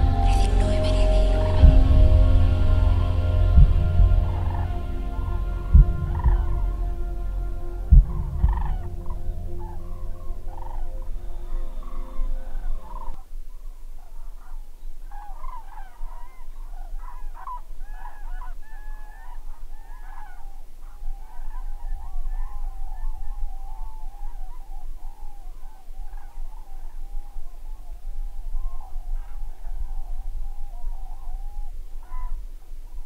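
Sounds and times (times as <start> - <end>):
steady hum and low rumble: 0.0 - 14.3.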